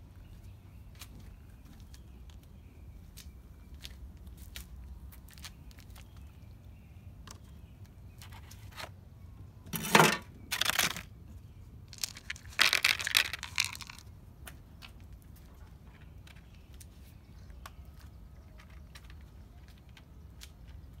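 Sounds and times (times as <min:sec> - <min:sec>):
dry cat food rattling into tray: 0:09.7 - 0:11.0, 0:11.9 - 0:14.0.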